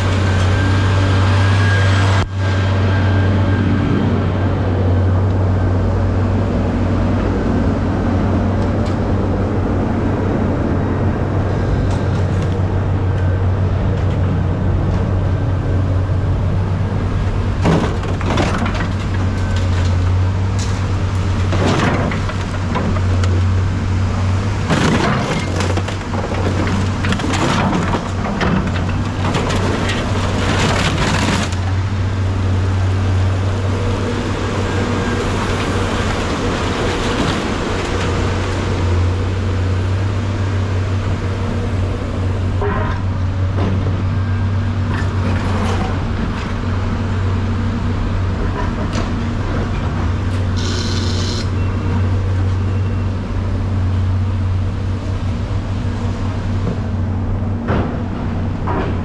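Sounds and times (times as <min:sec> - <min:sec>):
vehicle engine drone: 0:00.0 - 0:59.0.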